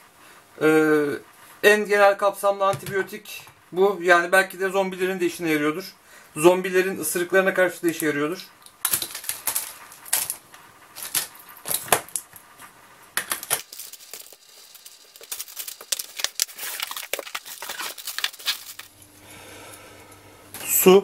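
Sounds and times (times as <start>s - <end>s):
objects clicking against plastic case: 8.6s - 10.4s
plastic packets crinkling: 8.6s - 12.6s, 13.2s - 19.1s.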